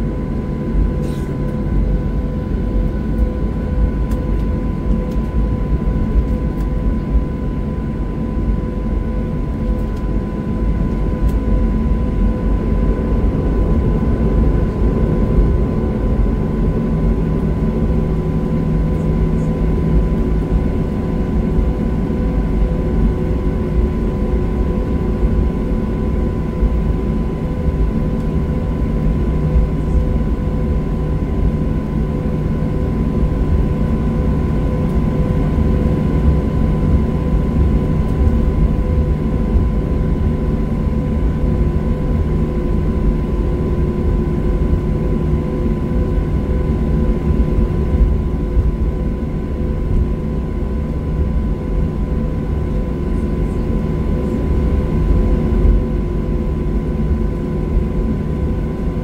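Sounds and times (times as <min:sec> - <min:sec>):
jet engine and airflow rumble in cabin: 0:00.0 - 0:59.0.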